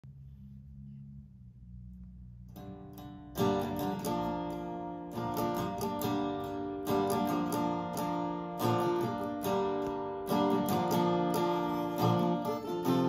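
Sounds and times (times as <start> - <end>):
acoustic guitar strumming: 2.6 - 13.0.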